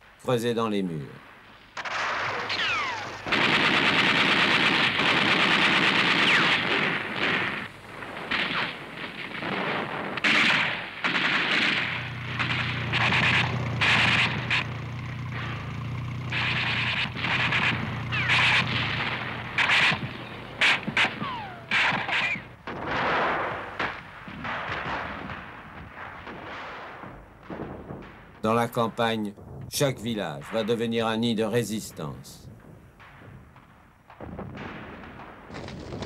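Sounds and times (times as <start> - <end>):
machine-gun fire: 1.8 - 28.7, 32.5 - 36.0
low steady drone: 11.8 - 22.7.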